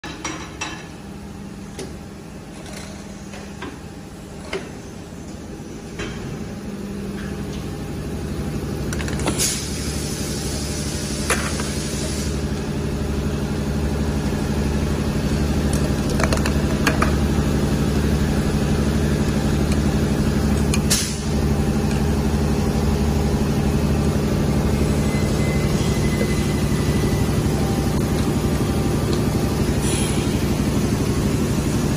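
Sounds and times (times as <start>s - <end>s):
machine humming: 9.7s - 31.9s.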